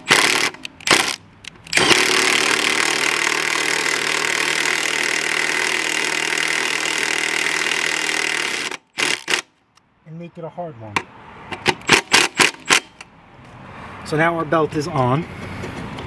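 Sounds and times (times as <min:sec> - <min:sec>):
power tool driving bolts: 0:00.0 - 0:09.6, 0:11.5 - 0:13.1.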